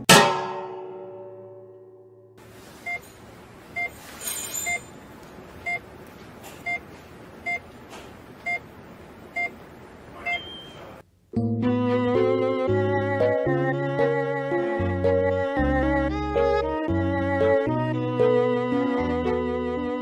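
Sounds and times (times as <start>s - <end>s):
heart monitor beeping: 2.8s - 3.1s, 3.7s - 4.0s, 5.6s - 5.9s, 6.6s - 7.8s, 8.4s - 8.7s, 9.3s - 9.6s, 10.2s - 10.9s.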